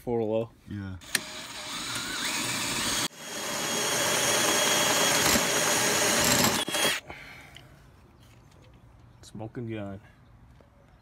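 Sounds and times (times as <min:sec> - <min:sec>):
drill cutting through steel: 0:01.0 - 0:07.0.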